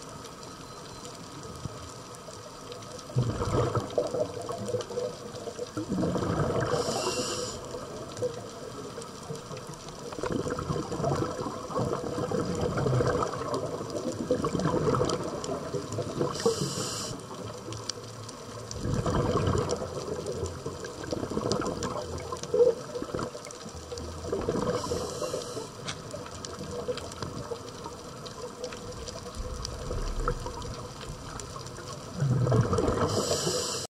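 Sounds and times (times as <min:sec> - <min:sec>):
underwater rushing bubbling water: 0:02.8 - 0:33.9
short high hiss: 0:06.8 - 0:07.6, 0:16.4 - 0:17.2, 0:33.1 - 0:33.9.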